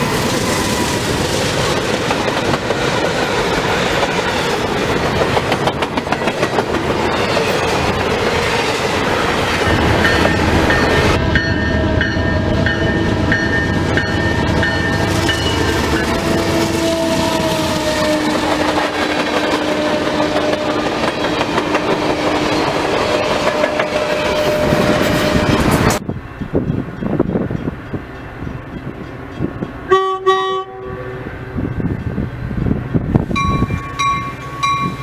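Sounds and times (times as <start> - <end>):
steel wheels clattering on rails: 0.0 - 12.0, 18.3 - 29.9
freight train passing: 0.0 - 35.0.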